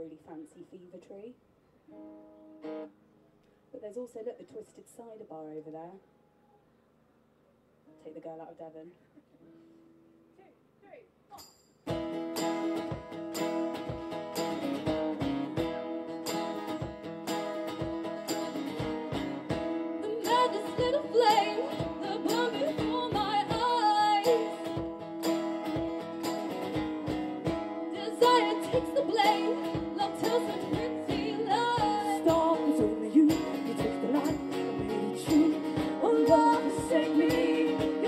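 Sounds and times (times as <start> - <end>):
acoustic guitar strumming: 1.9 - 3.1, 11.4 - 38.0
person singing: 20.0 - 24.9, 27.9 - 38.0.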